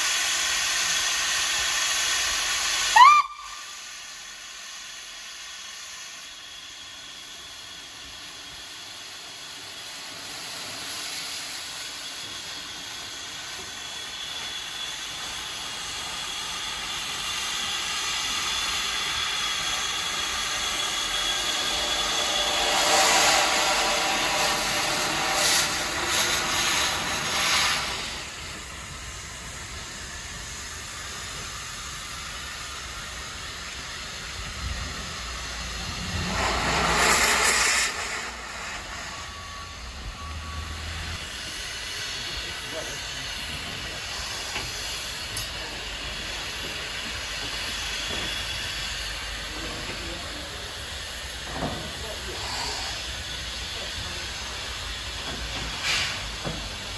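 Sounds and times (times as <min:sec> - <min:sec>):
bursts of steam: 0:00.0 - 0:56.9
steam locomotive hissing steam: 0:00.0 - 0:56.9
steam whistle toot: 0:02.8 - 0:03.9.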